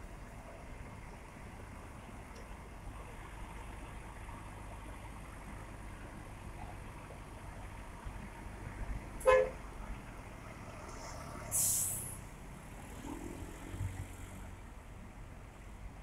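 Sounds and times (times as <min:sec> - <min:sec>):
bus engine rumbling: 0:00.0 - 0:16.0
bus horn toot: 0:09.2 - 0:09.6
air brake hiss: 0:11.5 - 0:12.2.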